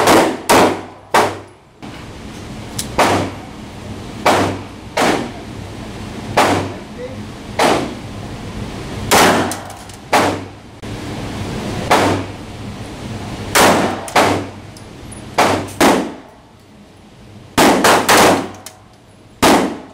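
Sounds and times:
pistol shots indoors: 0.0 - 1.5, 2.8 - 3.4, 4.2 - 5.4, 6.3 - 6.8, 7.6 - 8.0, 9.1 - 10.5, 11.9 - 12.3, 13.5 - 14.6, 15.2 - 16.3, 17.6 - 18.8, 19.4 - 19.9.

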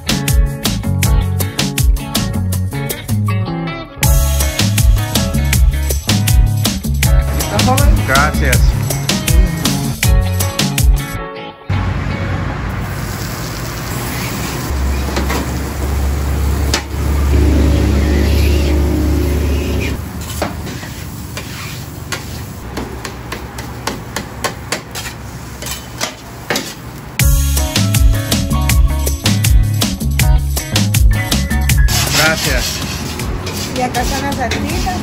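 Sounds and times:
food sizzling: 12.7 - 22.7
low rumble: 17.0 - 20.0
spatulas scraping on griddle: 20.2 - 22.6, 24.9 - 26.9, 31.9 - 35.0.

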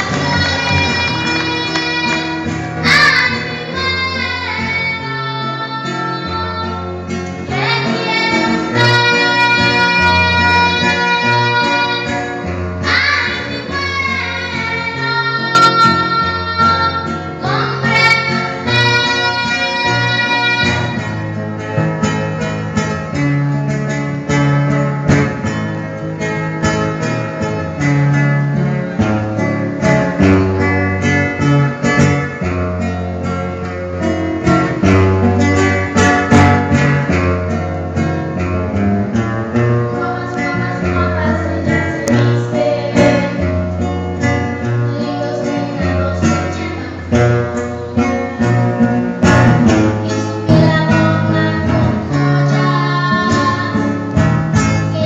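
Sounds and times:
woman singing into a microphone: 0.0 - 6.9, 7.5 - 12.2, 12.8 - 21.0, 39.9 - 43.5, 44.8 - 48.1, 49.8 - 55.0
acoustic guitar: 0.0 - 55.0.

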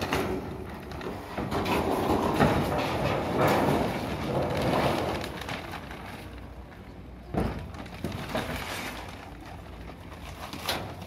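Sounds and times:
steps on metal roof: 0.0 - 5.8
foil sheet rustling and crackling: 0.0 - 11.0.

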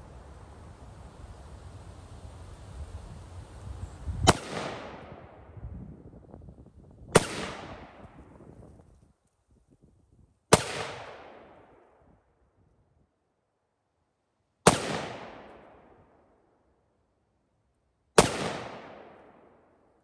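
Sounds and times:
rifle shots echoing: 4.3 - 5.4, 7.2 - 8.1, 10.5 - 11.9, 14.6 - 15.9, 18.2 - 19.5.

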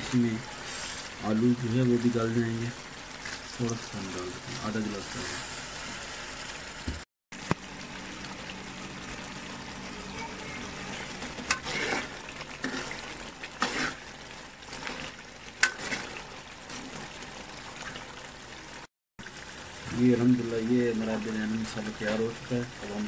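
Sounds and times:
food sizzling in a pot: 0.0 - 23.0
metal ladle scraping a pot: 11.4 - 14.1, 14.7 - 17.1.

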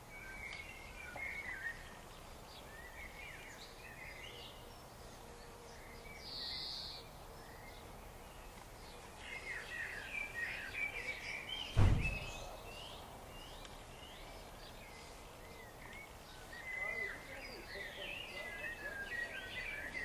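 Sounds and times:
birds singing: 0.0 - 20.0
sharp thump: 11.7 - 12.5.

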